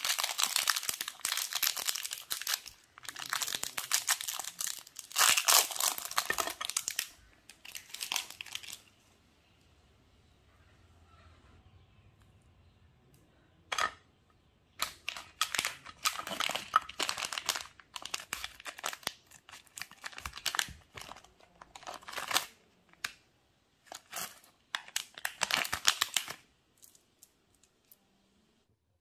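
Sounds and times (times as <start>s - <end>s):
plastic wrapper crinkling and tearing: 0.0s - 8.9s, 14.8s - 23.2s, 23.8s - 28.0s.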